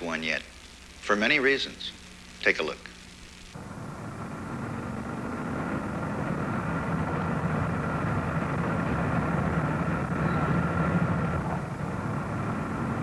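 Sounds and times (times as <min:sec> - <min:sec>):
car engine driving: 0:03.6 - 0:13.0
tyre and road noise: 0:03.6 - 0:13.0.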